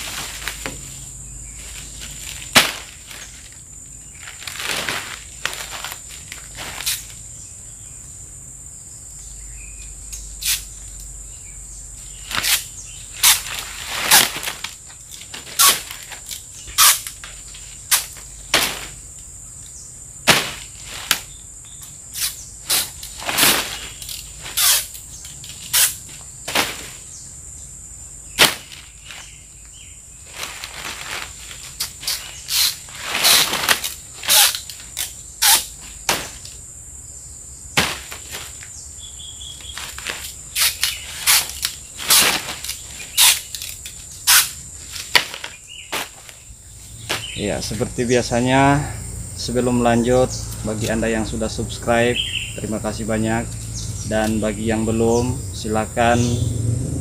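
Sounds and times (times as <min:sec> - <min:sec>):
palm stalk being cut by hand: 0:01.7 - 0:03.6, 0:12.2 - 0:19.1, 0:20.2 - 0:27.0, 0:28.4 - 0:29.3, 0:30.5 - 0:36.6, 0:37.8 - 0:38.7, 0:39.6 - 0:46.4
high-pitched insect drone: 0:45.6 - 0:57.0.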